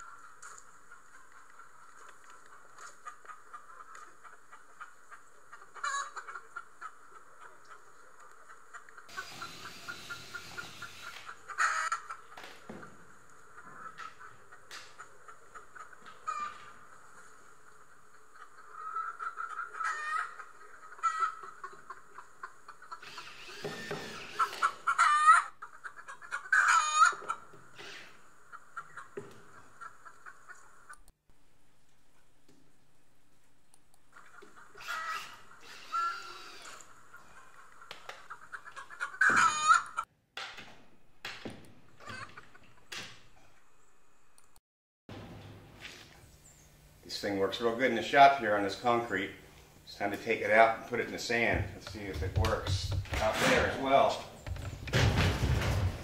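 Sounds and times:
chickens clucking: 0.0s - 31.1s, 34.0s - 40.1s, 41.9s - 43.7s, 47.0s - 56.0s
chicken squawk: 2.8s - 12.4s, 13.8s - 31.0s, 34.1s - 40.1s, 42.0s - 42.6s
rustling clatter: 54.4s - 56.0s
wooden knocks of coop door: 54.5s - 56.0s.

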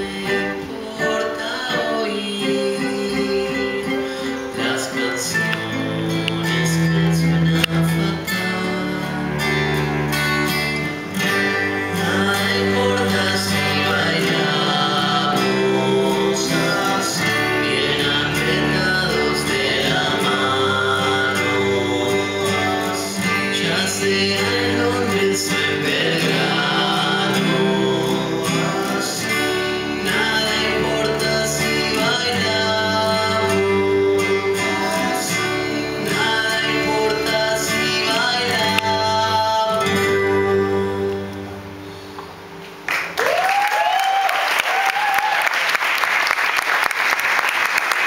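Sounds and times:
men singing: 0.0s - 41.4s
acoustic guitars strummed: 0.0s - 43.2s
audience applause: 8.9s - 11.0s, 42.8s - 48.0s.

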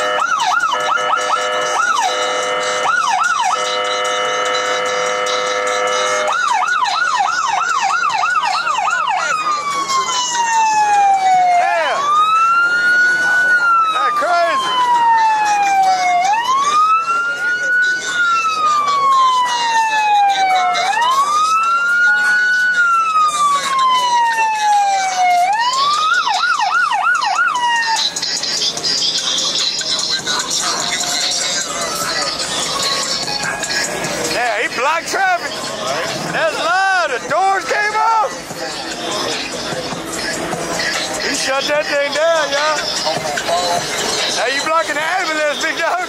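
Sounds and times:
steady blaring horn tone: 0.0s - 6.4s
electronic siren yelp: 0.0s - 34.4s.

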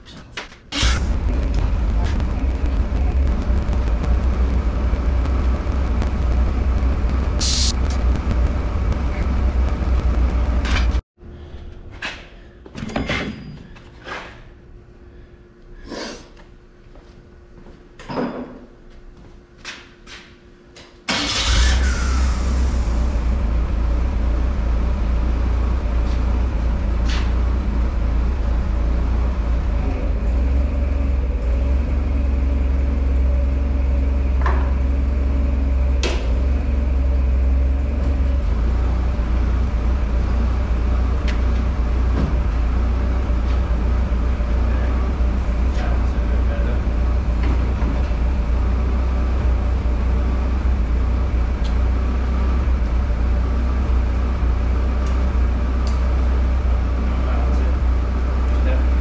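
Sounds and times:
machinery rumbling: 0.7s - 12.6s, 21.1s - 59.0s
faint steady hum: 0.8s - 12.7s
sharp knocks and metal clanks: 18.0s - 18.7s.

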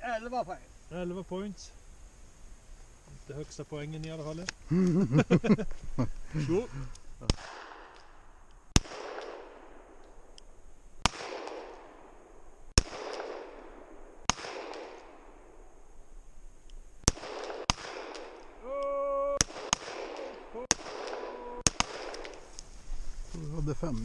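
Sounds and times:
handgun shots with echo: 8.8s - 9.6s, 19.4s - 22.4s.

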